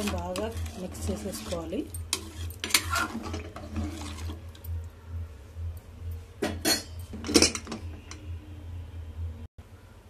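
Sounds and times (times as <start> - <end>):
sloshing: 0.0 - 4.6
spoon stirring in metal pot: 0.0 - 4.8
low steady hum: 0.0 - 10.0.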